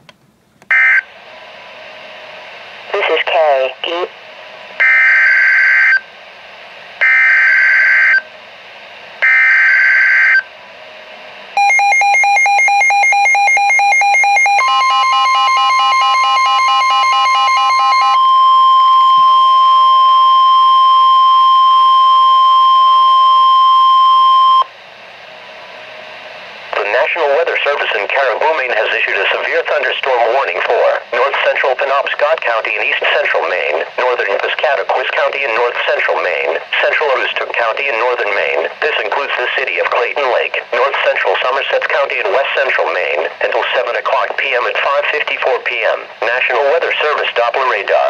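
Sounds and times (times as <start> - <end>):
steady alarm tone: 4.8 - 6.0, 7.0 - 8.2, 9.2 - 10.5, 11.6 - 24.7
pulsing electronic beeping: 11.6 - 20.4.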